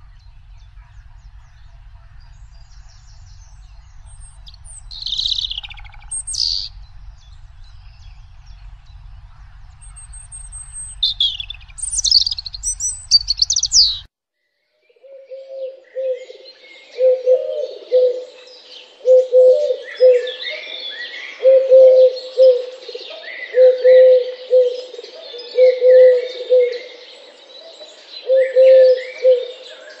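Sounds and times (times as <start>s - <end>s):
chorus of twittering birds: 0.0s - 14.1s, 14.8s - 30.0s
small birds chirping: 0.0s - 14.1s.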